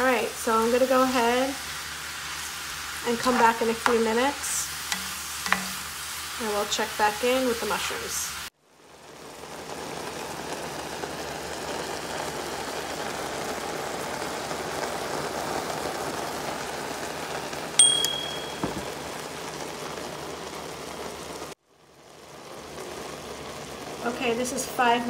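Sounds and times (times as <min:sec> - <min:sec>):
mushrooms sizzling in butter: 0:00.0 - 0:25.0
sharp tick with high ring: 0:17.8 - 0:18.6.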